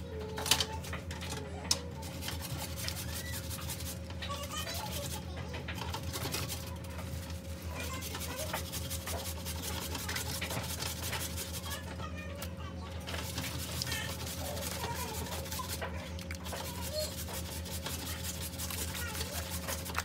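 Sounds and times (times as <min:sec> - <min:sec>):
steady low hum: 0:00.0 - 0:20.0
hands squishing wet meat: 0:13.1 - 0:20.0.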